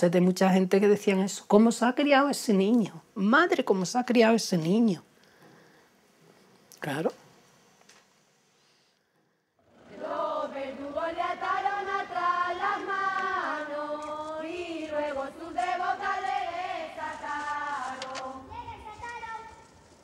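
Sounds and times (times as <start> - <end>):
group singing chant-like tune: 9.6 - 18.5.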